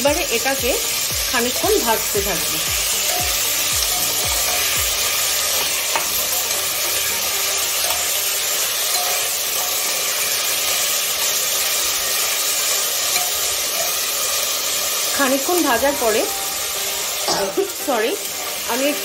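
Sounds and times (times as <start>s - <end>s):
vegetables sizzling in oil: 0.0s - 19.0s
metal spatula clinking on pot: 1.4s - 14.8s.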